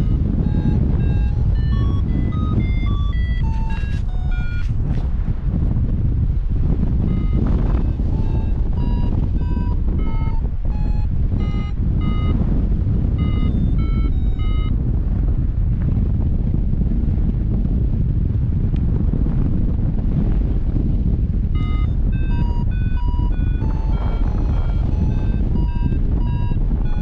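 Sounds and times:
variometer beeping: 0.0s - 5.0s, 6.8s - 14.8s, 21.6s - 27.0s
wind rush on microphone: 0.0s - 27.0s.

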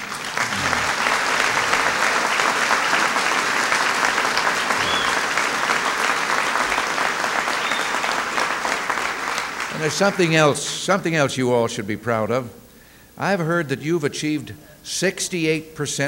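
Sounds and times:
audience applause: 0.0s - 10.8s.

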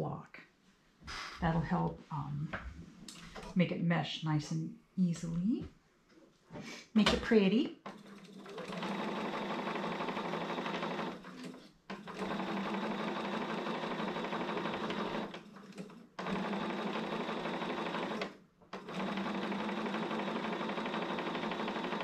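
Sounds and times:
sewing machine stitching: 7.3s - 22.0s.

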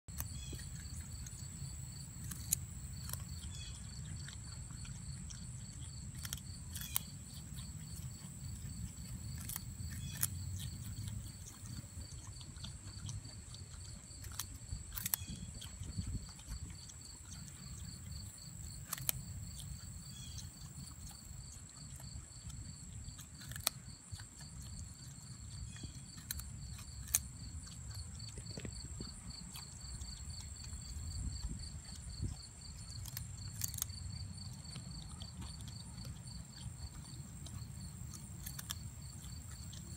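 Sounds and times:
pulsing insect trill: 0.1s - 4.0s, 17.3s - 21.1s
crunching carrot bites: 0.1s - 39.9s.

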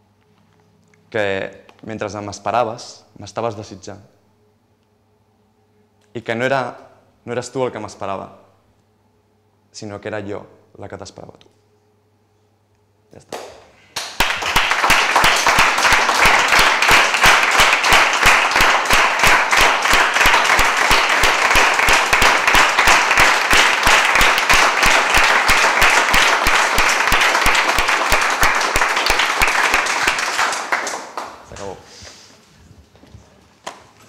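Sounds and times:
close person clapping: 13.3s - 31.8s
audience applauding: 14.0s - 31.8s.

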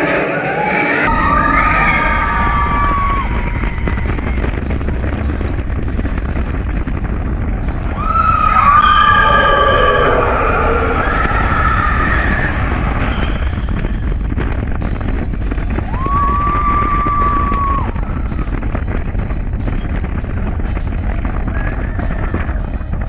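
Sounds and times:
heavy wind noise: 1.0s - 23.0s
roller coaster rumbling and clattering: 1.0s - 23.0s
riders screaming: 1.1s - 4.4s, 7.9s - 14.2s, 15.8s - 18.4s.

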